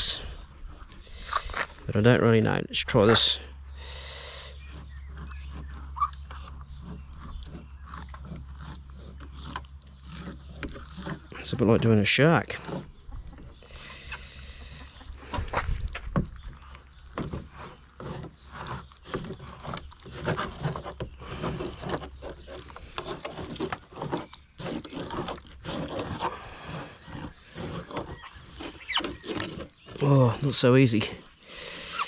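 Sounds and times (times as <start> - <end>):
knife scraping and tearing fish: 4.6 - 13.0, 16.6 - 30.5.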